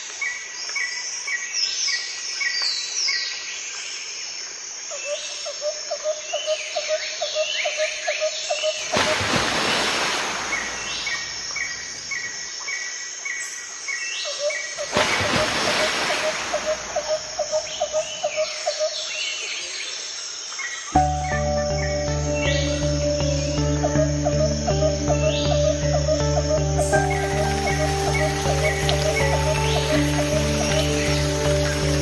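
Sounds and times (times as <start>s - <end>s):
birds chirping and calling: 16.2s - 19.4s, 21.0s - 32.0s
low pulsing chirps: 21.0s - 32.0s.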